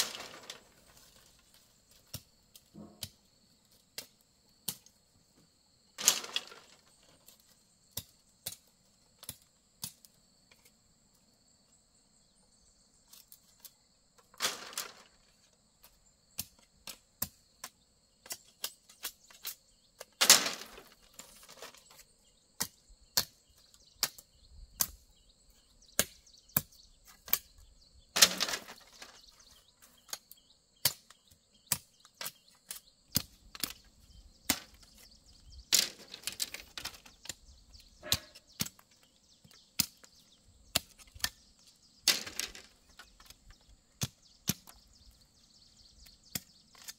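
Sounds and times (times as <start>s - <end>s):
ringing bamboo strikes: 38.0s - 38.8s.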